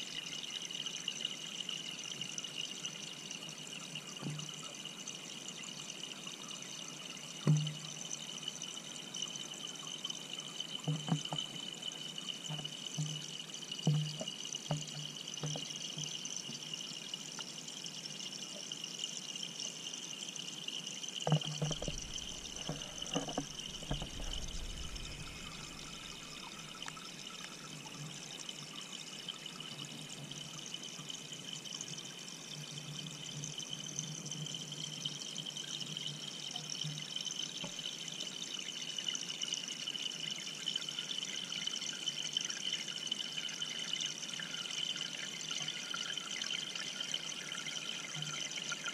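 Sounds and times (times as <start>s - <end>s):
dull knocks: 21.3s - 26.8s
underwater filter water hiss: 21.3s - 28.8s.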